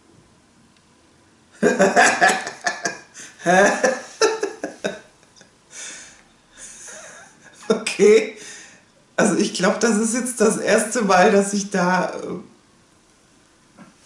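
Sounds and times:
woman laughing: 0:01.6 - 0:05.0, 0:06.6 - 0:08.2
breathy exhale: 0:05.7 - 0:06.9, 0:08.4 - 0:08.8.

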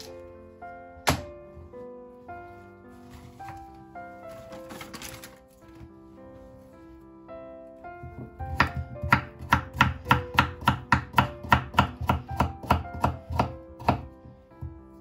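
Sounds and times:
knife chopping on wooden board: 0:08.1 - 0:14.7.

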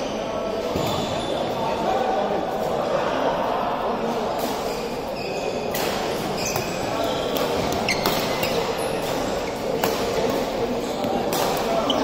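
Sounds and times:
murmur of voices: 0:00.0 - 0:12.0
shoes squeaking on court: 0:04.6 - 0:12.0.

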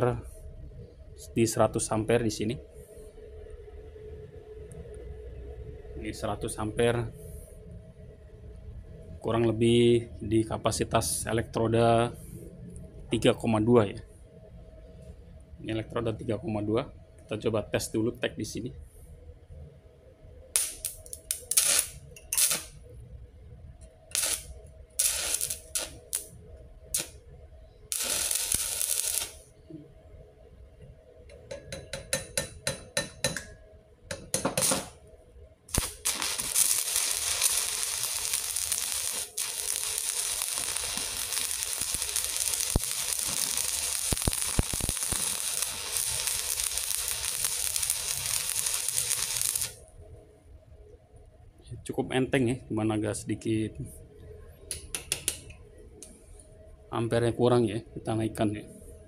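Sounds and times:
welding arc crackling: 0:20.6 - 0:22.8, 0:24.1 - 0:27.2, 0:27.9 - 0:29.5, 0:34.6 - 0:35.0, 0:35.7 - 0:49.8.

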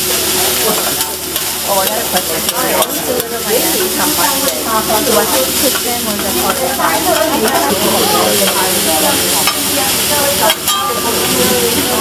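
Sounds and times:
rice sizzling on griddle: 0:00.0 - 0:12.0
spatula tapping on steel: 0:10.5 - 0:11.1.

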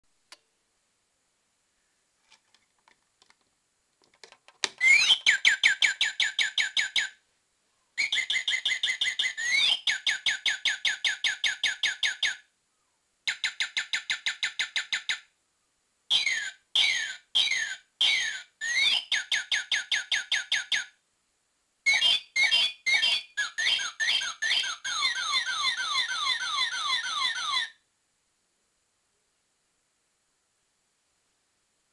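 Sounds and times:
toy bird electronic chirps: 0:04.8 - 0:07.2, 0:08.0 - 0:12.5, 0:13.3 - 0:15.3, 0:16.1 - 0:21.0, 0:21.9 - 0:27.8.

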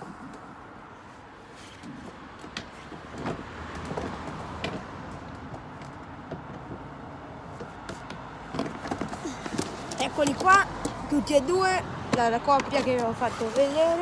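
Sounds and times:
handling knocks and clicks: 0:07.6 - 0:11.0.

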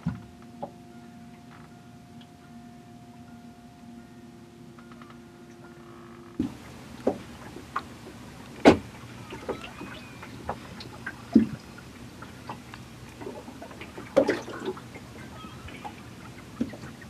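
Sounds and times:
water lapping against boat hull: 0:06.4 - 0:17.0
slaps against boat hull: 0:08.6 - 0:08.9.

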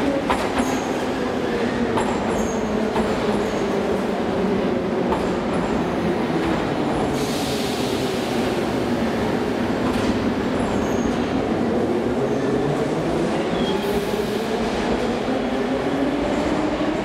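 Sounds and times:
train hiss: 0:07.0 - 0:09.4.

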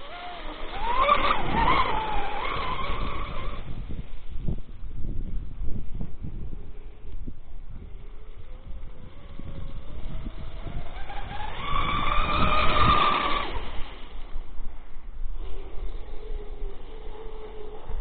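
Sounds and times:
electric motor whining: 0:00.0 - 0:04.0, 0:07.8 - 0:14.5, 0:15.4 - 0:18.0.

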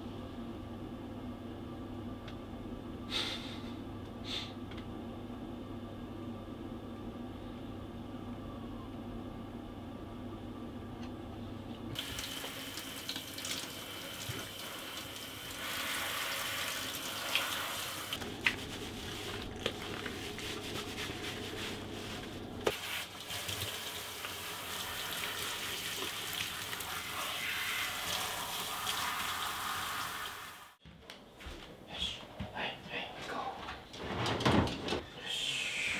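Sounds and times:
shower spraying water: 0:12.0 - 0:30.8.

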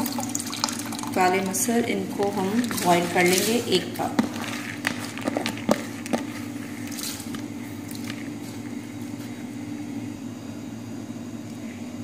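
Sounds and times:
steady low hum: 0:00.0 - 0:12.0
lentils poured into water: 0:02.2 - 0:08.4.

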